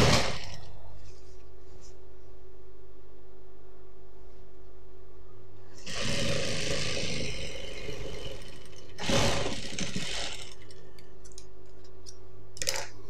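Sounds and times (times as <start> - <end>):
industrial sewing machine stitching: 0.0 - 0.6, 5.8 - 10.7
steady low hum: 0.0 - 13.0.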